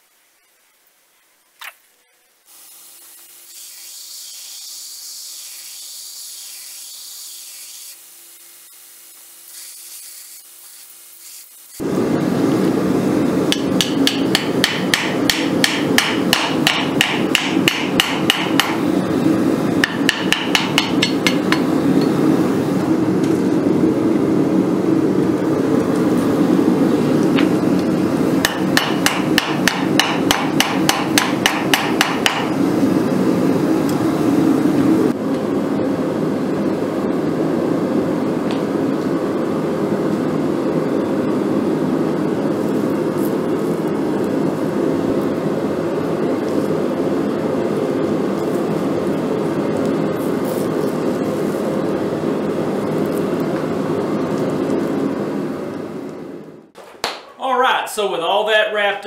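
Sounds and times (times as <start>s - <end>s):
hammer striking steel on anvil: 13.5s - 18.8s, 19.8s - 22.1s, 28.4s - 32.5s.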